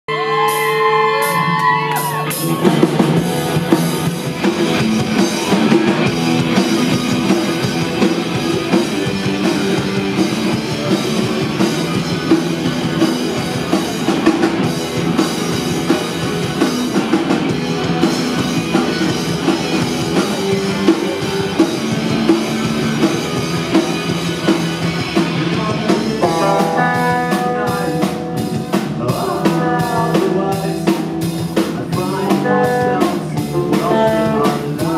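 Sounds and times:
person shouting: 0.1s - 2.8s
rock band playing live: 0.1s - 34.9s
steady drum beat: 0.4s - 34.9s.

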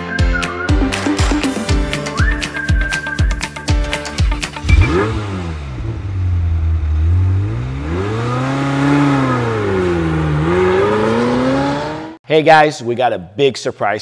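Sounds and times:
car engine revving: 4.6s - 12.2s.

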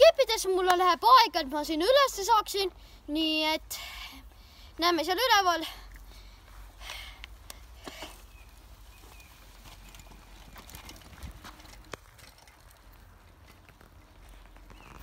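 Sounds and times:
footsteps on dirt trail: 6.4s - 15.0s
mountain bike rolling over ground: 7.7s - 15.0s.

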